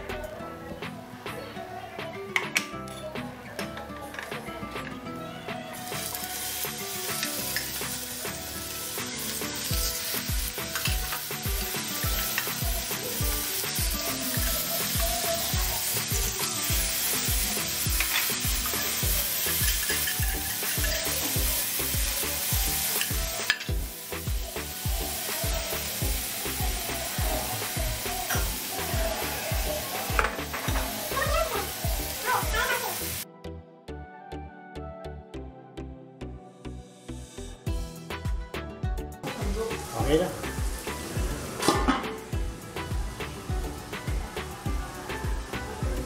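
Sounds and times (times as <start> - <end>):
fish steaks sizzling in a pan: 5.8 - 33.2, 39.2 - 46.0.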